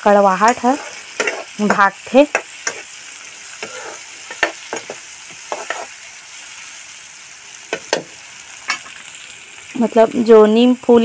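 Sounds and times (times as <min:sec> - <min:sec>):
onions sizzling in pan: 0:00.0 - 0:11.0
spatula scraping and knocking pan: 0:00.4 - 0:03.0, 0:03.6 - 0:06.0, 0:07.7 - 0:08.9.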